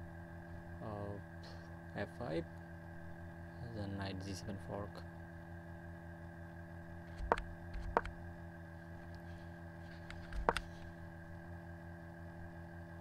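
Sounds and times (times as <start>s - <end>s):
electrical hum: 0.0s - 13.0s
sharp clicks: 7.2s - 8.2s.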